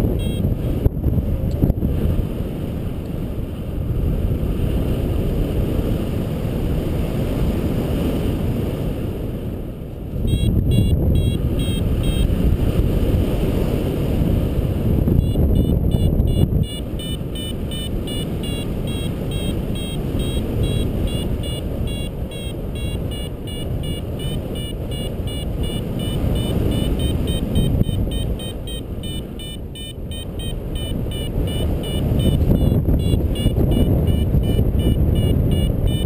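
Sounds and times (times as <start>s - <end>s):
wind over microphone: 0.0s - 36.0s
variometer beeping rapidly: 0.2s - 0.5s, 10.3s - 12.3s, 15.2s - 36.0s.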